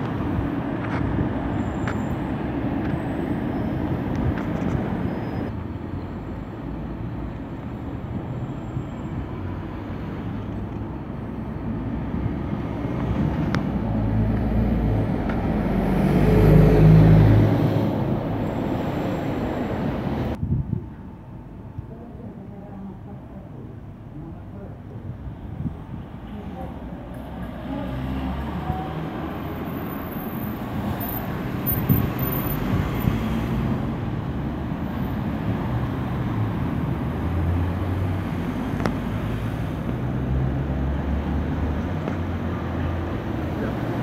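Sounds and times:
heavy vehicle engine rumbling past: 0:00.0 - 0:20.4
street traffic noise: 0:00.0 - 0:44.0.

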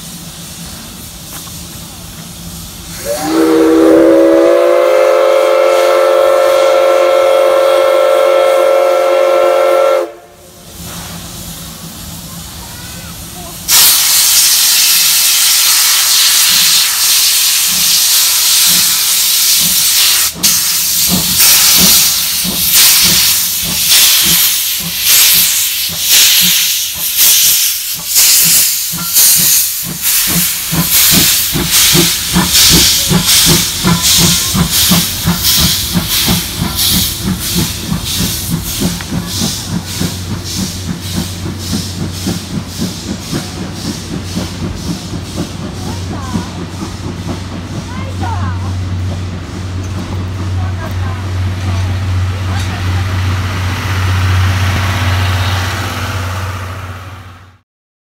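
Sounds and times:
steam hiss: 0:00.0 - 0:57.5
passenger coaches rumbling past: 0:00.0 - 0:57.6
steam locomotive exhaust chuffs: 0:00.0 - 0:57.6.

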